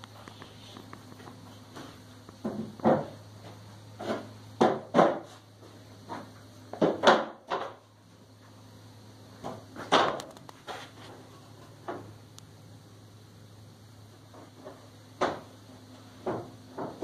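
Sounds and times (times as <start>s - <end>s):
steady low hum: 0.0s - 17.0s
wooden knocks and thumps: 1.8s - 3.2s, 16.2s - 17.0s.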